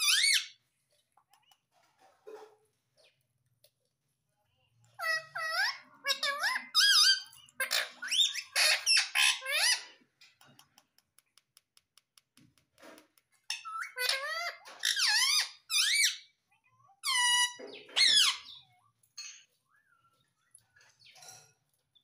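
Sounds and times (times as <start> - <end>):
parakeet squeaky calls: 0.0 - 0.6, 5.0 - 10.0, 13.5 - 19.3
beak tapping on phone screen: 10.4 - 13.4.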